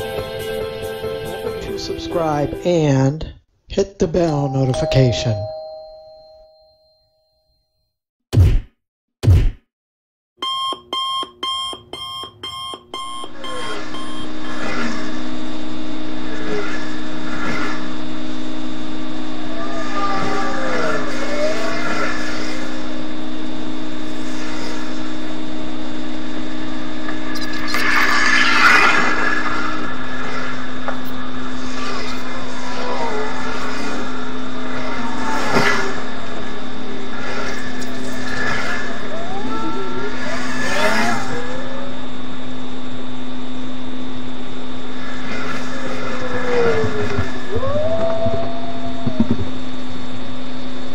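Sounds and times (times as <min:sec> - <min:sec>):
electronic alarm beeps: 0:04.4 - 0:06.8, 0:10.4 - 0:14.4
constant low hum: 0:11.9 - 0:50.9.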